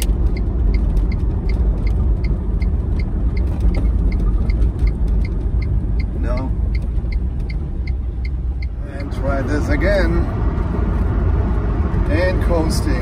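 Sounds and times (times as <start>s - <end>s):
small steady ticking: 0.0s - 9.1s
road and tyre noise: 0.0s - 13.0s.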